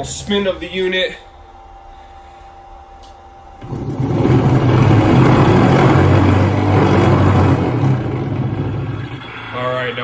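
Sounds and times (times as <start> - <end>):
polishing wheel spinning with hum: 3.6 - 9.3.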